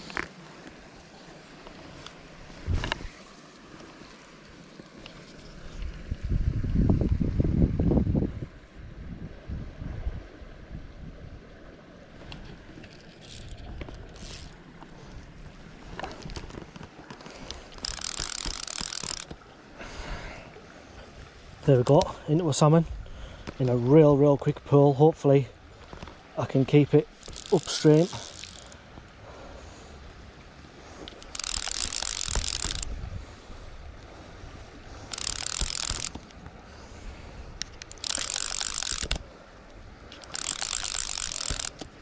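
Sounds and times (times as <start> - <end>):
fishing line rustling: 0.0 - 6.0, 12.2 - 19.4, 25.8 - 29.2, 30.7 - 33.1, 33.9 - 42.0
fishing reel drag screaming: 13.2 - 14.6, 17.7 - 19.3, 27.1 - 28.8, 31.0 - 32.9, 34.9 - 36.3, 37.8 - 39.2, 40.1 - 41.9.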